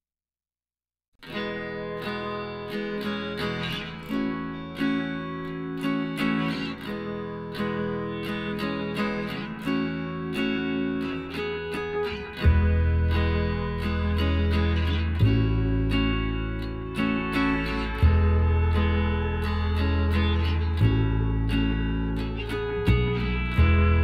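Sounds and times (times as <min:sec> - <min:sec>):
acoustic guitar picking: 0:01.3 - 0:24.0
deep bass part: 0:12.4 - 0:24.0.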